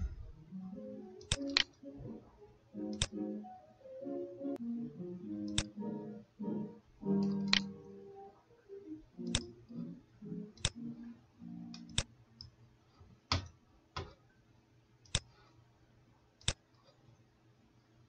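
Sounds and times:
computer mouse clicking: 1.2 - 1.8, 2.9 - 3.2, 5.5 - 5.7, 7.2 - 7.7, 10.6 - 10.8, 15.0 - 15.4, 16.4 - 17.1.

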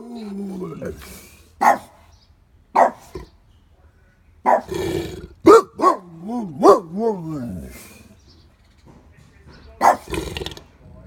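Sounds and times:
dog barking: 1.6 - 2.0, 2.8 - 3.1, 4.4 - 4.8, 5.4 - 7.3, 9.8 - 10.1.

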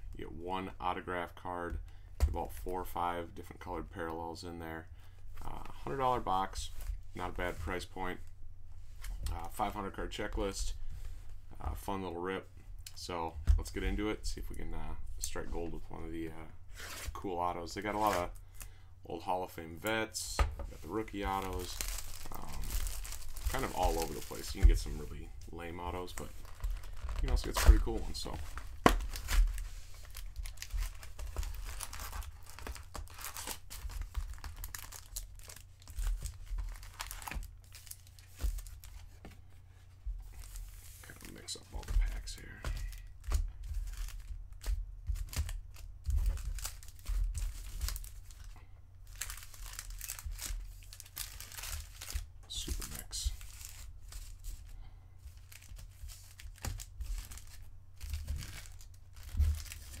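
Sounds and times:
foil wrappers crinkling: 20.7 - 39.1, 40.3 - 60.0.

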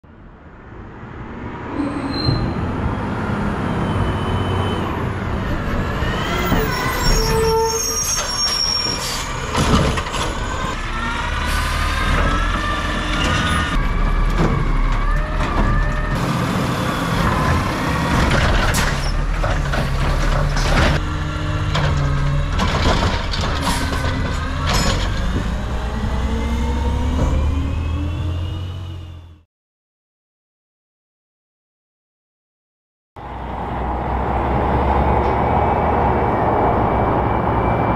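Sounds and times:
garbage truck diesel engine revving: 10.2 - 29.4.

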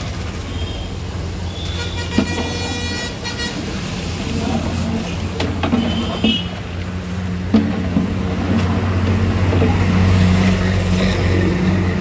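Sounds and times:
traffic hum: 0.0 - 12.0
vehicle horn: 1.6 - 3.8, 5.7 - 6.6.

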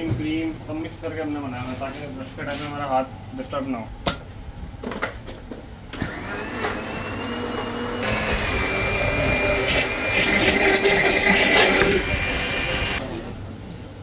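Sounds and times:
blender motor whining: 6.0 - 13.0.

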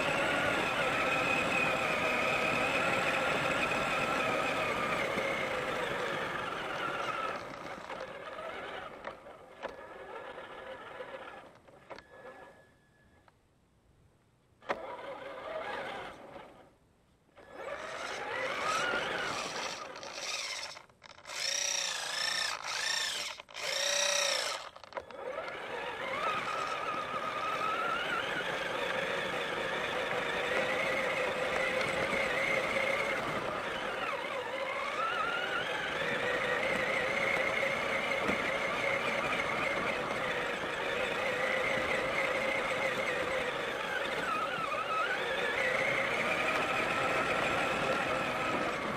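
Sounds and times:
toy truck electric motor whining: 0.0 - 13.2, 14.6 - 16.7, 17.4 - 48.9.

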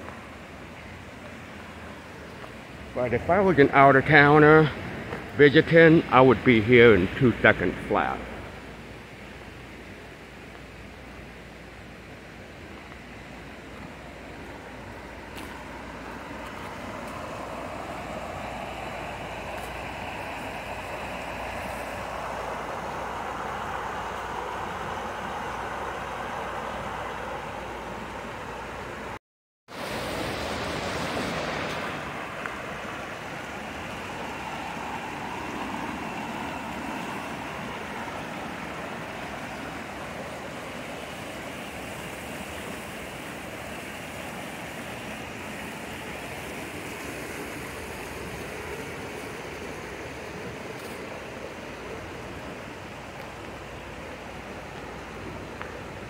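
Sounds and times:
creek rushing over rocks: 13.6 - 56.0.

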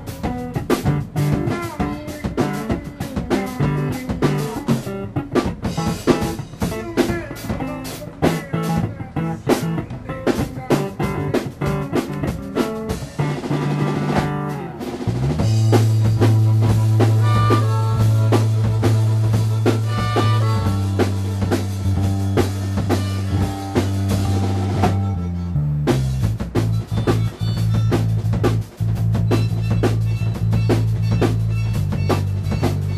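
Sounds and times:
bass guitar: 0.0 - 32.9
drum kit playing: 0.0 - 32.9.

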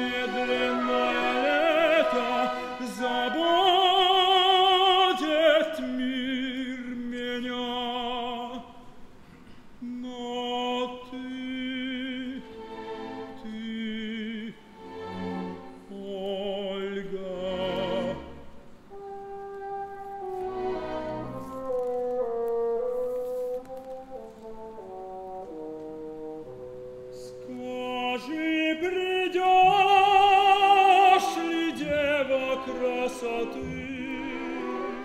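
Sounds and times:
orchestral accompaniment: 0.0 - 8.6, 10.0 - 35.0
man singing operatically: 0.0 - 8.8, 9.8 - 14.8, 15.9 - 18.6, 27.2 - 35.0.

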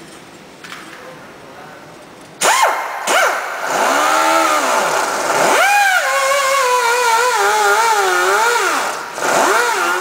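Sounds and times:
pneumatic grinder whining: 2.4 - 10.0.

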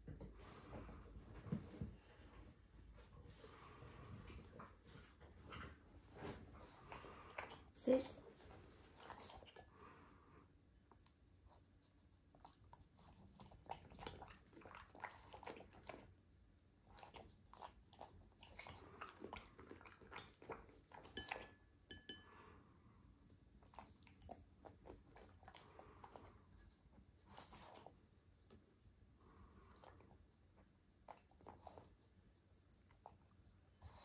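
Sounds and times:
dog chewing and crunching: 12.3 - 16.1, 16.8 - 21.5.

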